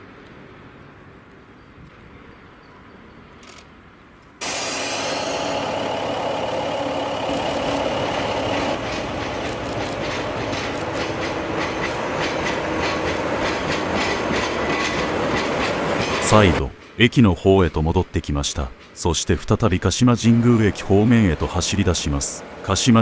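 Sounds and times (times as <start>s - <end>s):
diesel locomotive running: 4.4s - 23.0s
wheels clattering over rails: 5.4s - 17.0s.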